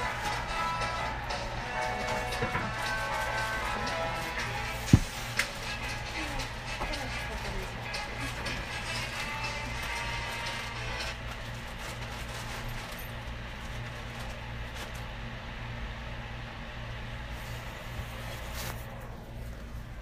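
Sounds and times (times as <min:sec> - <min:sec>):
music: 0:00.0 - 0:11.8
low background rumble and hum: 0:00.0 - 0:20.0.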